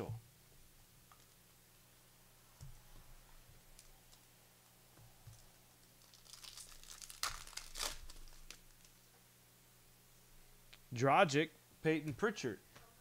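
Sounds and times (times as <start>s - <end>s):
wrapper crinkling and tearing: 5.7s - 9.0s.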